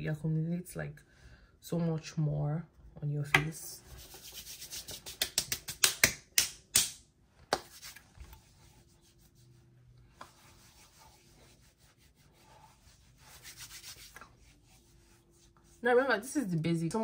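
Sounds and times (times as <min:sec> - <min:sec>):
hands rubbing and patting skin: 0:03.4 - 0:15.8.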